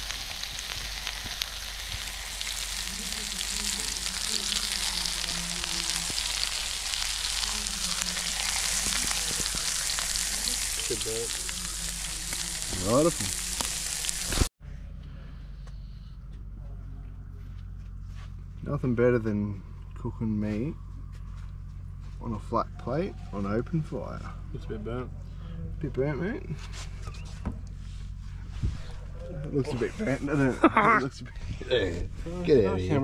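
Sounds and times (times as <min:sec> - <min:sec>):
sausages sizzling on hot plate: 0:00.0 - 0:14.5.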